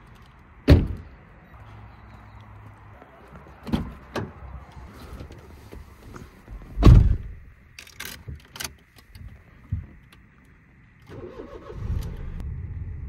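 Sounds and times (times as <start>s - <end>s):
car door thump: 6.8s - 7.3s.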